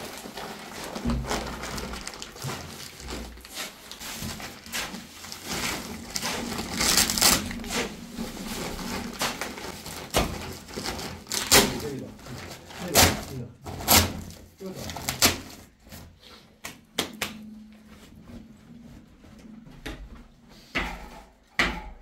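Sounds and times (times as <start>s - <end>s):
sharp knocks: 20.8s - 22.0s.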